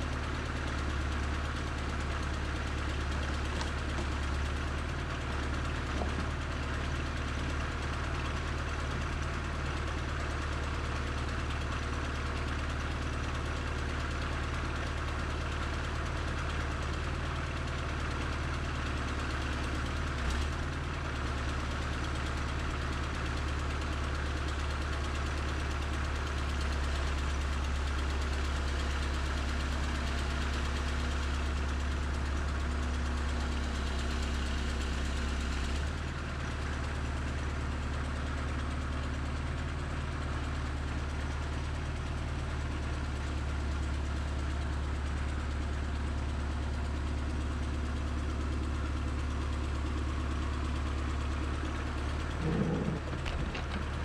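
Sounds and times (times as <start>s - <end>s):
diesel engine running: 0.0s - 7.0s, 41.4s - 54.0s.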